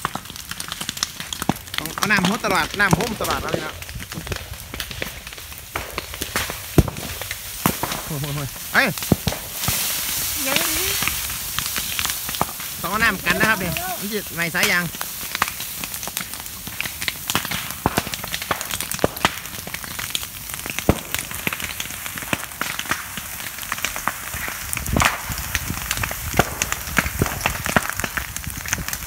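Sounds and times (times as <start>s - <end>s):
fire crackling and popping: 0.0s - 29.0s
loud crack with dull thump: 2.9s - 8.1s, 9.0s - 9.9s, 24.9s - 25.4s, 26.3s - 29.0s
water spraying from a hose: 6.5s - 29.0s.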